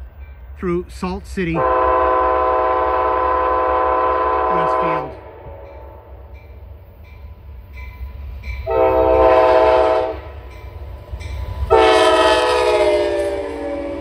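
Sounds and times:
passing diesel locomotive rumble: 0.0 - 14.0
locomotive air horn blasts: 1.6 - 5.8, 8.6 - 10.4, 11.7 - 14.0.

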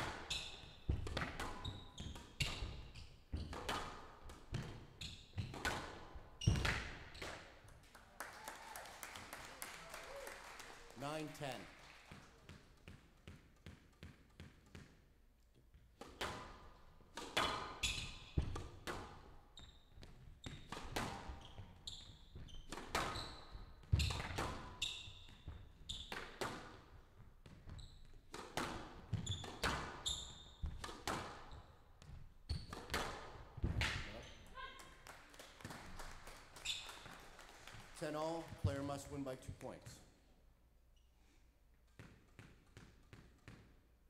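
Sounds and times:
ball bouncing: 0.0 - 7.4, 12.4 - 15.1, 15.7 - 34.4, 41.9 - 43.8
squash ball hitting rackets and walls: 0.0 - 7.8, 12.1 - 34.8, 41.7 - 44.0
shoe squeaks: 0.2 - 0.9, 1.5 - 3.6, 4.9 - 5.5, 17.4 - 18.4, 19.6 - 20.7, 21.3 - 26.2, 27.6 - 28.3, 29.1 - 30.8, 36.6 - 37.0.

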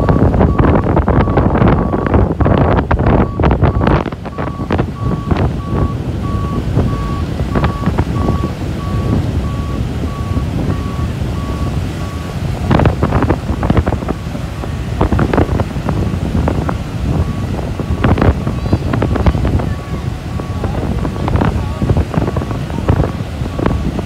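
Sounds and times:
reversing alarm beeping: 0.0 - 2.2, 3.1 - 12.4, 17.1 - 21.5, 23.0 - 24.0
low engine rumble: 0.0 - 24.0
wind buffeting microphone: 0.0 - 24.0.

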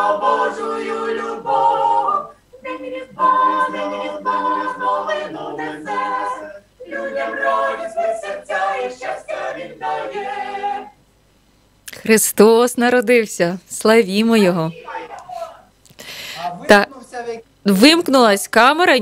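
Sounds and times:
choir singing a cappella: 0.0 - 11.0, 14.5 - 15.7.

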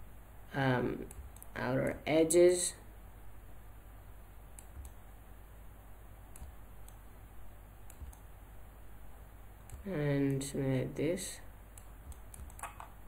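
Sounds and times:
low steady hum: 0.0 - 13.0
mouse and keyboard clicks: 4.6 - 5.0, 6.3 - 7.0, 7.8 - 8.2, 9.6 - 9.9, 11.8 - 13.0.

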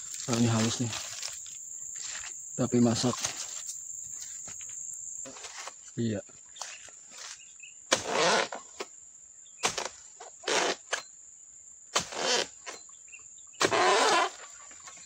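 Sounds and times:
high insect whine: 0.0 - 15.0
chisel chopping palm fronds: 6.6 - 8.9, 9.6 - 11.1, 11.9 - 12.8, 13.6 - 14.9.

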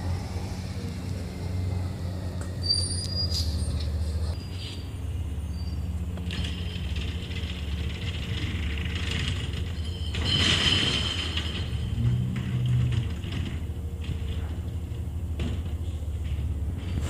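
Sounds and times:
garbage truck engine drone: 0.0 - 17.0
high squeals: 2.3 - 7.8, 9.5 - 12.8.

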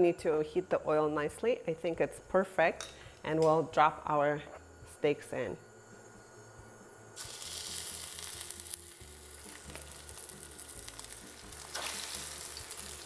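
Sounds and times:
fish steak sizzling in oil: 7.2 - 13.0.

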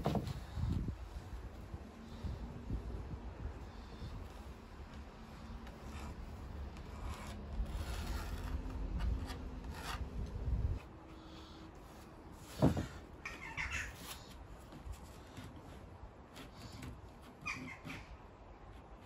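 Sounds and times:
pencil rubbing on fibreboard: 5.7 - 10.0.

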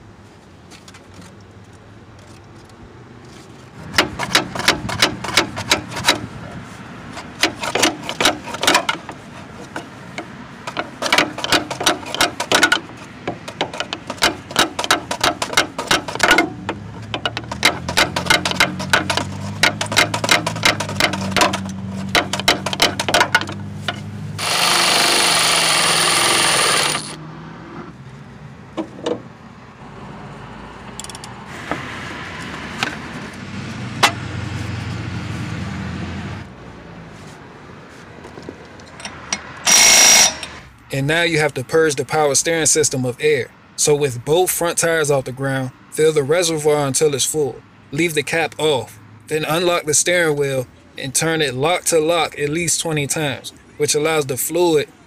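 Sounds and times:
hand ratchet clicking: 10.7 - 16.5, 17.1 - 23.5, 24.4 - 27.2, 38.9 - 40.6
loud steady noise: 24.4 - 27.2.

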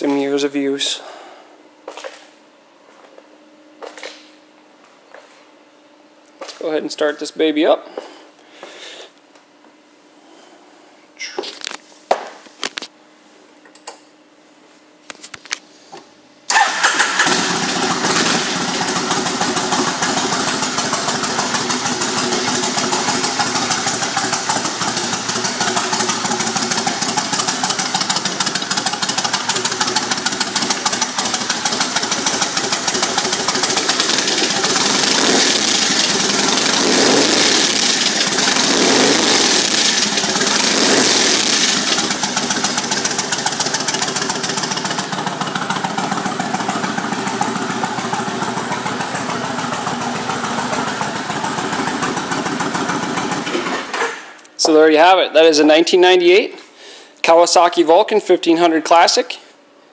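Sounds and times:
motorcycle engine starting and idling: 16.5 - 54.4.

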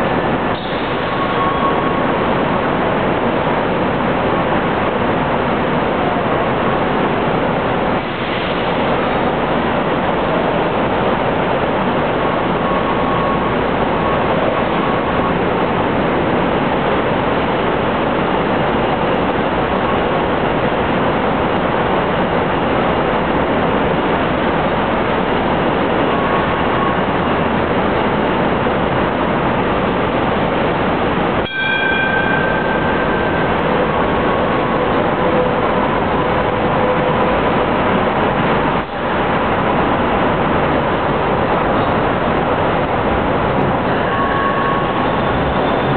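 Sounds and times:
light rail vehicles running: 0.0 - 45.9
brief high tone: 1.1 - 2.0, 31.4 - 35.6, 43.9 - 45.9.

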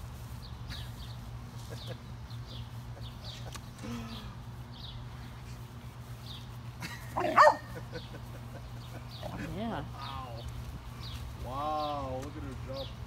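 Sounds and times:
steady low hum: 0.0 - 13.0
small bird chirping: 0.2 - 6.7, 7.4 - 13.0.

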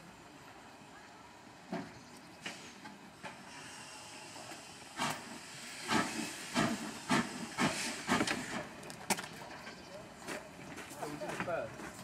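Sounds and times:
steam locomotive chuffing: 2.4 - 9.0.

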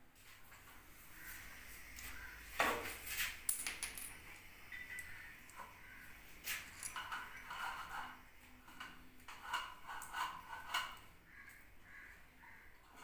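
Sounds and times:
small metal parts clinking on tiles: 3.5 - 5.1, 6.7 - 8.0.

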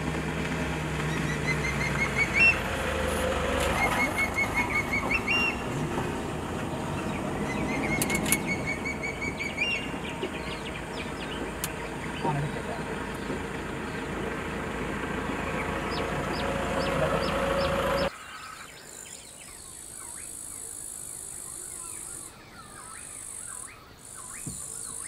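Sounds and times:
low engine hum: 0.0 - 18.1
hawk-eagle calling: 1.0 - 18.1.

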